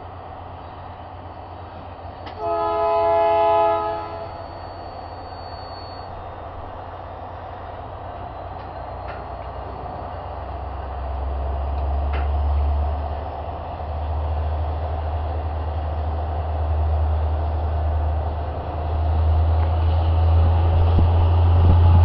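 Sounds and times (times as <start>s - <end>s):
train rumbling in motion: 0.0s - 22.0s
wind buffeting microphone: 20.2s - 22.0s.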